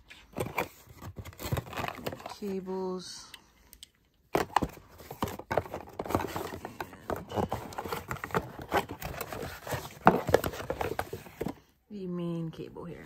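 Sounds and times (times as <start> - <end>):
cardboard and cables being handled: 0.0 - 2.8, 4.3 - 11.6.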